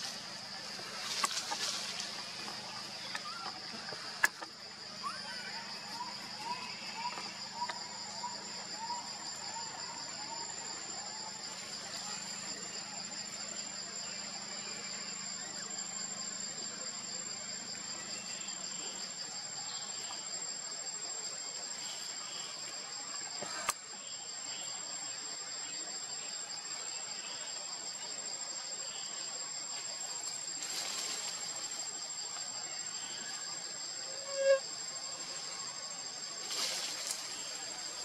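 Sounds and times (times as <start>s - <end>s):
insect chorus pulsing buzz: 0.0s - 38.0s.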